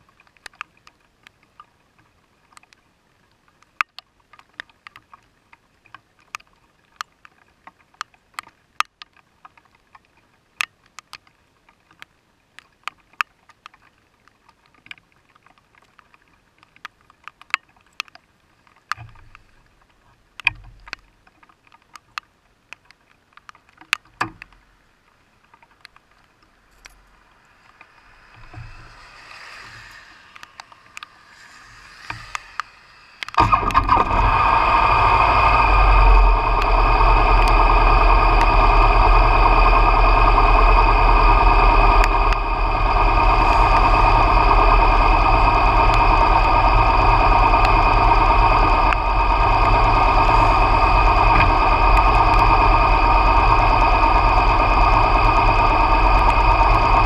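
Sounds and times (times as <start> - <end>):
rain ticking on vehicle: 0.0 - 57.0
rain hiss: 15.7 - 57.0.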